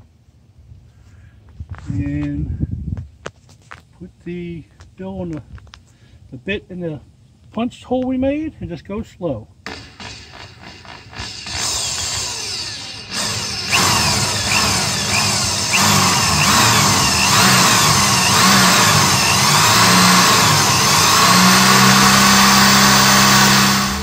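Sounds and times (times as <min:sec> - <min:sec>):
electric drill boring through metal: 0:09.7 - 0:24.0.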